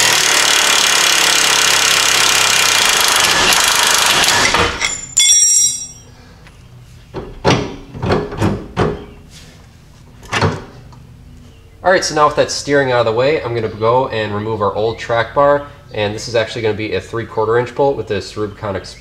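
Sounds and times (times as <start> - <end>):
impact wrench whirring: 0.0 - 5.2
impact wrench hammering: 0.1 - 6.0
sharp metal knocks: 4.5 - 6.1.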